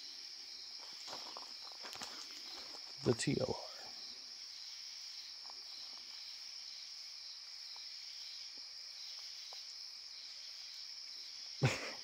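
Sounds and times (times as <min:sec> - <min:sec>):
crickets trilling: 0:00.0 - 0:12.0
faint ticks: 0:08.5 - 0:10.4.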